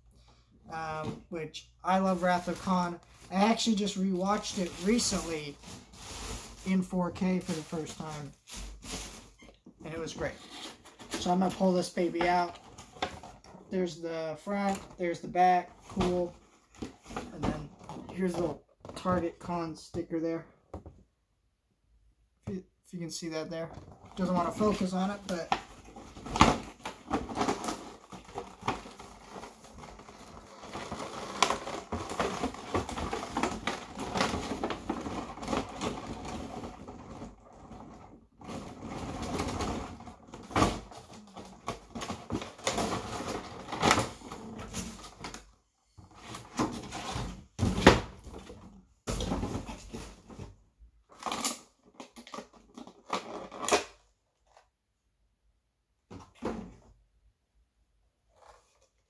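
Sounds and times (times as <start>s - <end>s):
packaging rustling and clicking: 23.9s - 45.4s.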